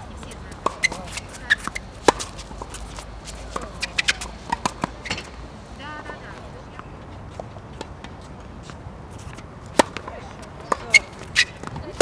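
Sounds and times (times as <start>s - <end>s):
tennis ball struck by racket: 0.0s - 5.4s, 9.2s - 12.0s
shoe squeak on court: 0.7s - 1.9s, 3.8s - 5.4s, 10.6s - 11.7s.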